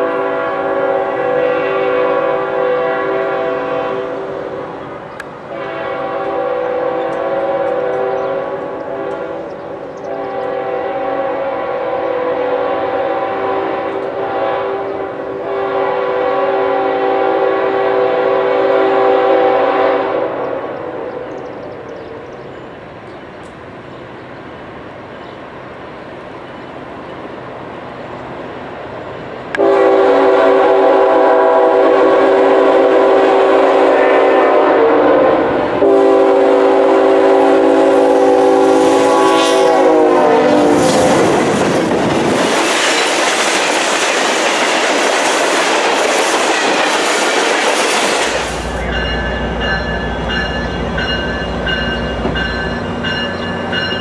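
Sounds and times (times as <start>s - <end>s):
locomotive air horn blasts: 0.0s - 4.8s, 5.5s - 21.3s, 29.6s - 41.5s
diesel locomotive engine rumble: 0.0s - 54.0s
train wheel and rail noise: 0.0s - 54.0s.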